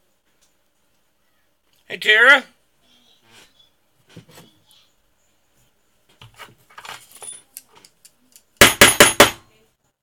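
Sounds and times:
faint knocks and rustling: 3.2 - 4.9, 5.5 - 8.0.

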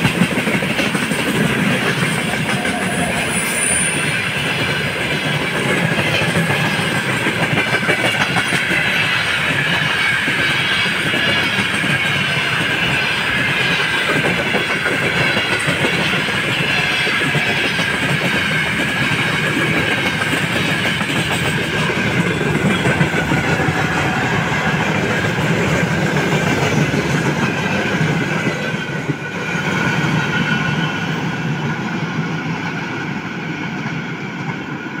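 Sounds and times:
freight train wheels rumbling: 0.0 - 35.0.

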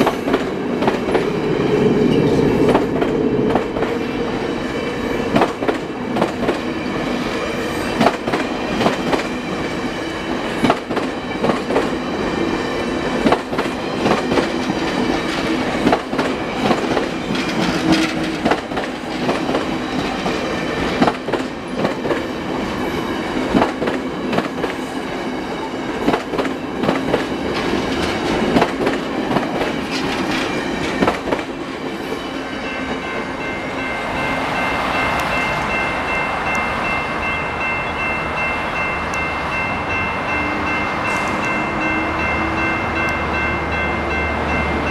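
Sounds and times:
train cars rumbling past: 0.0 - 44.9
wheels clacking over rail joints: 13.2 - 22.3, 25.5 - 32.1.

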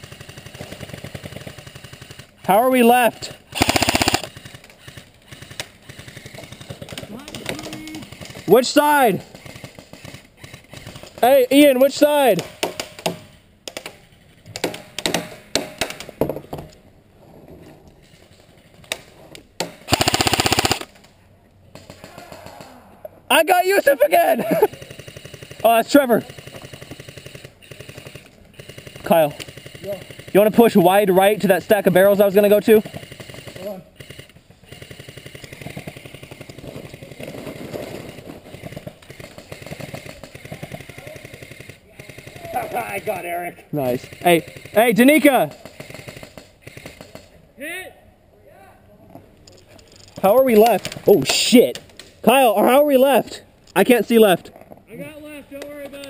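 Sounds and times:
airsoft rifle firing full auto: 0.0 - 11.7, 19.8 - 21.0, 24.6 - 43.2, 43.8 - 47.3.

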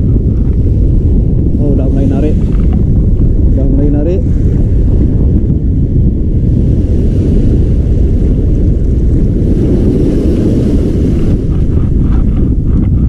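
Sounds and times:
wind buffeting microphone: 0.0 - 13.0
surf washing up beach: 0.6 - 12.4.

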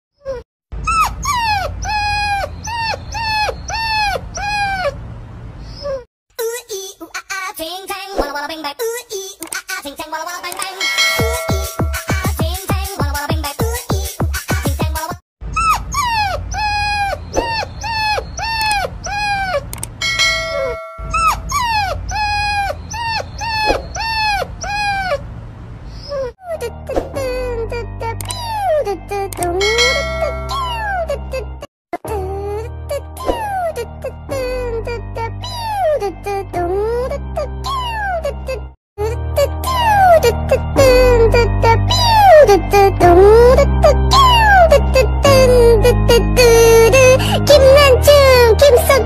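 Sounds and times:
puppy whining: 0.3 - 5.0, 5.6 - 6.1, 15.5 - 25.3, 25.9 - 26.8.

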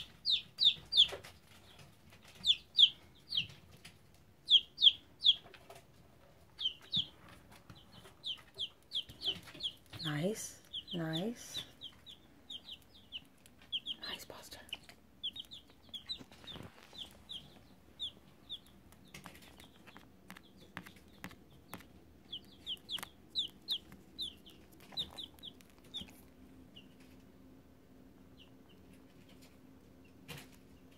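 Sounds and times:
baby chick peeping: 0.0 - 30.9.

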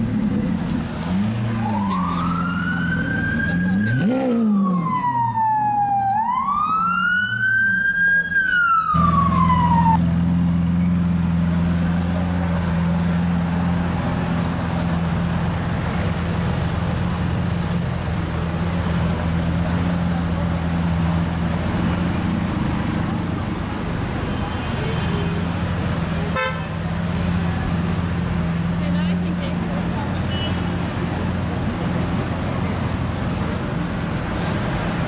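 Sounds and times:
emergency siren wailing: 1.6 - 10.0
car engine idling: 9.0 - 35.0.

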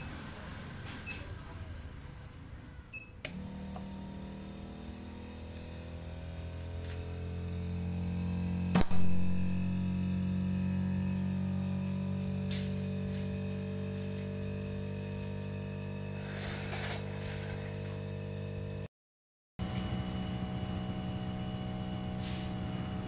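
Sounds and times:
machine pump and motor hum: 3.2 - 18.8, 19.6 - 23.0
sharp click: 8.7 - 9.5
short hiss of air: 22.1 - 22.6.

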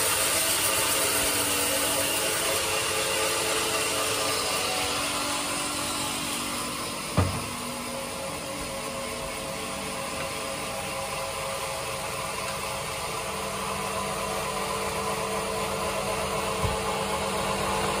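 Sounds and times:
sawmill machinery humming: 0.0 - 18.0.

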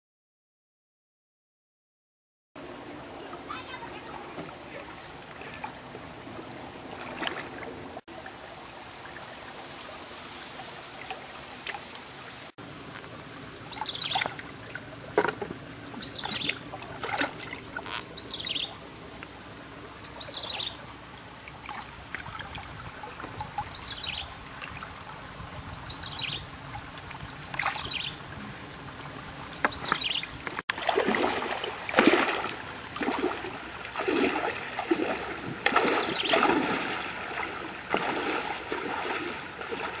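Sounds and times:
stream water trickling: 2.6 - 40.0
legs splashing through water: 3.4 - 8.0, 13.5 - 18.7, 26.7 - 28.2, 29.4 - 40.0.

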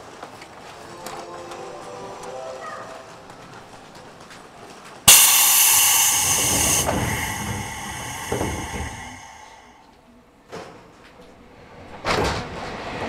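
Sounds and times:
compressed air hissing: 5.1 - 9.8.

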